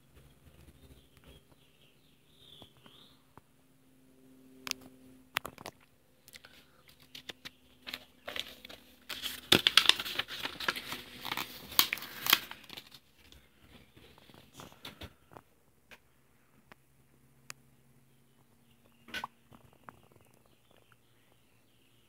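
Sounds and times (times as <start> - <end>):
paper clicks: 6.4 - 13.4
paper pages rustling: 6.9 - 15.0.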